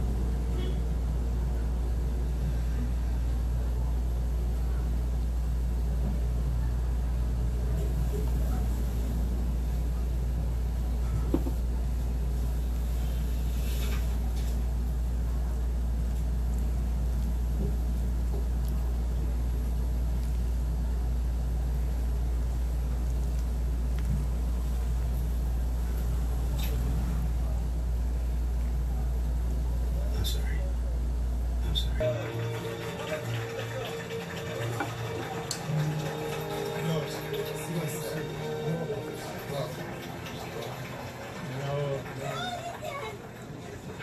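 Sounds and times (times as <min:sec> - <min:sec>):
low engine-like rumble: 0:00.0 - 0:32.2.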